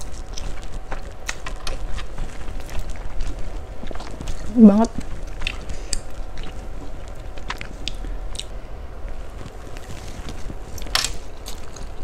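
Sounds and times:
chewing and mouth sounds: 0:00.0 - 0:12.0.

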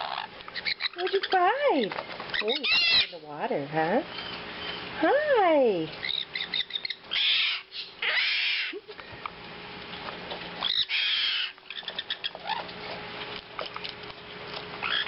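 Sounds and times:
birds squawking raspily: 0:00.0 - 0:08.9, 0:10.5 - 0:12.9, 0:14.7 - 0:15.0.

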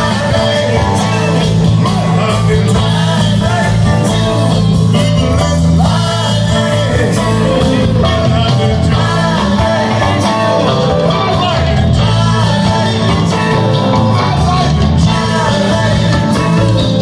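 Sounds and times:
bass line: 0:00.0 - 0:17.0
live rock band: 0:00.0 - 0:17.0.

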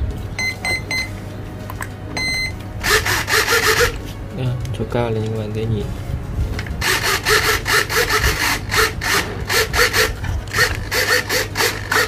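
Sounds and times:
servos whirring: 0:02.8 - 0:04.0, 0:06.6 - 0:12.0.

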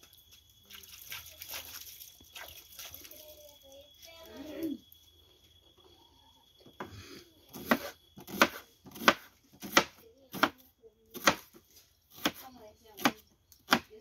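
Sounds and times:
knife chopping onion on plastic board: 0:07.5 - 0:12.4, 0:13.0 - 0:13.9.

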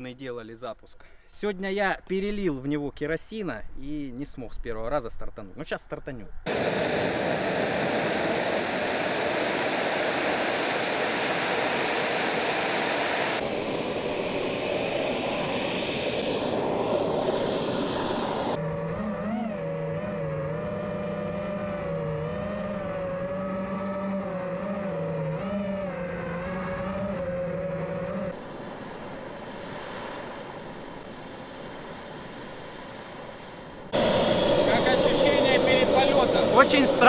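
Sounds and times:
model jet turbine roaring hiss: 0:06.5 - 0:18.6, 0:28.3 - 0:37.0.

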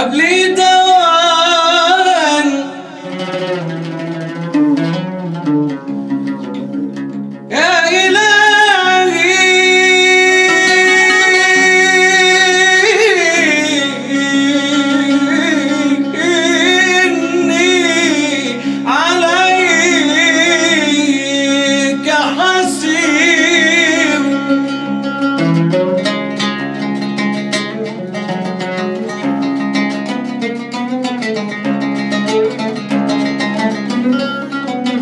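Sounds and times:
man singing ornamented phrases: 0:00.0 - 0:03.2, 0:07.5 - 0:25.1.

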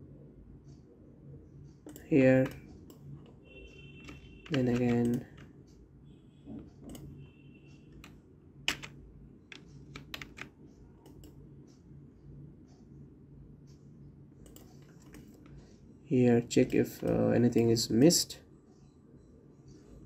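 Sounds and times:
faint low hum: 0:00.0 - 0:20.0
keyboard and mouse clicks: 0:01.8 - 0:03.3, 0:04.0 - 0:05.5, 0:06.8 - 0:07.1, 0:08.0 - 0:11.4, 0:14.4 - 0:15.5.

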